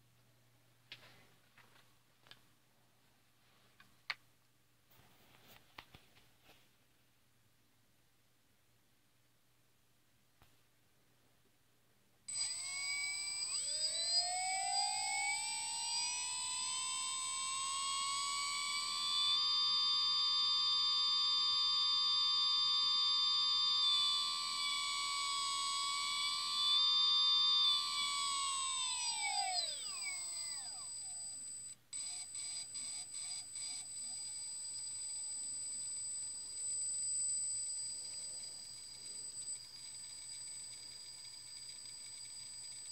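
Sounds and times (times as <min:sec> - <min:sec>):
electric motor whining: 0:12.3 - 0:42.9
short evenly spaced pulses: 0:12.3 - 0:42.9.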